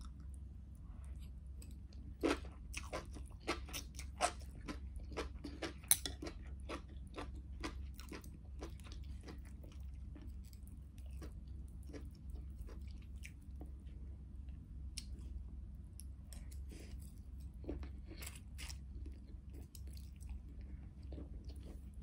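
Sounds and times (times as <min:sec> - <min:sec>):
mouth chewing noodles: 0:01.2 - 0:13.7.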